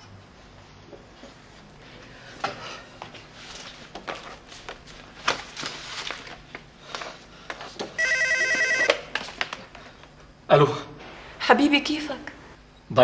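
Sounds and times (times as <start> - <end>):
papers rustling and flipping: 3.3 - 8.0, 8.8 - 10.2
telephone ringing: 8.0 - 9.1.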